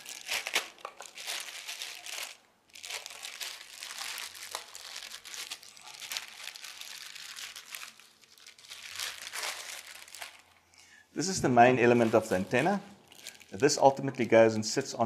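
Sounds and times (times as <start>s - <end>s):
plastic bag crinkling: 0.0s - 10.7s, 11.8s - 14.6s.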